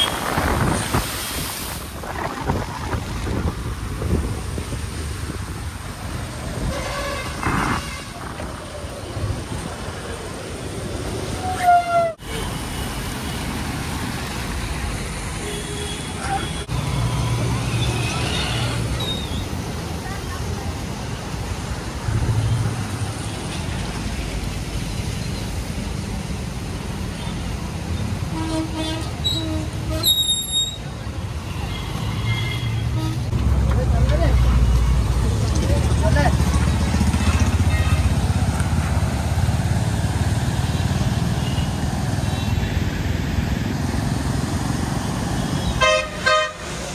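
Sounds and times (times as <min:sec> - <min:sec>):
wind buffeting microphone: 0:00.0 - 0:09.8
traffic on a wet road: 0:00.0 - 0:46.9
motorcycle engine and road rumble: 0:30.8 - 0:46.9.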